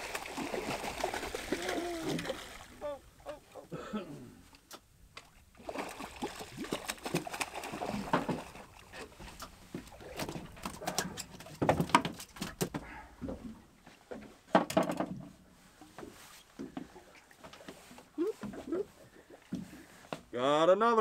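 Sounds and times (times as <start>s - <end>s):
knocks and rustles on a boat: 6.9s - 18.8s, 19.5s - 20.3s.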